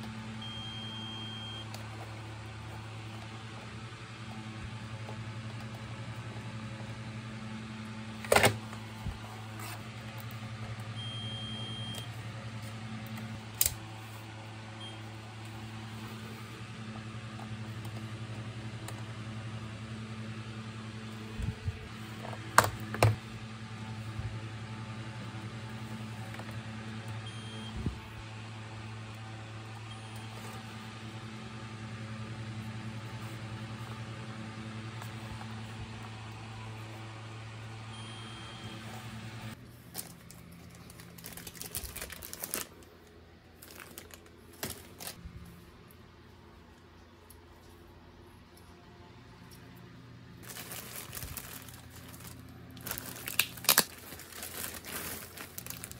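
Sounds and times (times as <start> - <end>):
low steady hum: 0.0 - 55.9
short high multimeter beeps: 0.4 - 1.7, 11.0 - 12.1.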